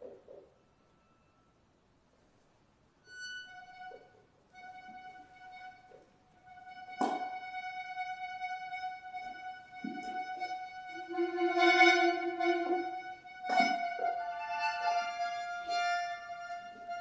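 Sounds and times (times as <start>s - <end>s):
accordion holding high note: 3.2s - 17.0s.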